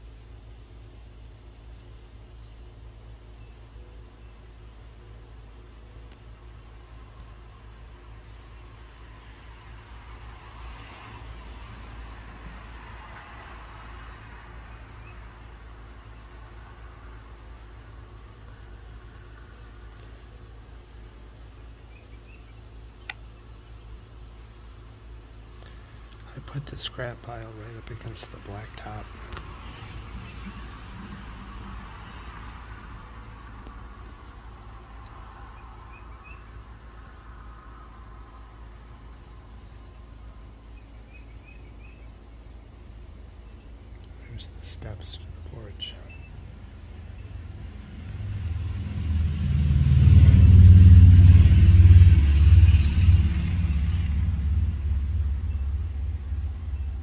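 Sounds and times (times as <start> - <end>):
insect chirping: 0.0 - 57.0
vehicle passing by: 8.5 - 19.9, 25.9 - 40.2, 44.2 - 57.0
low rumble: 28.8 - 40.2, 45.2 - 57.0.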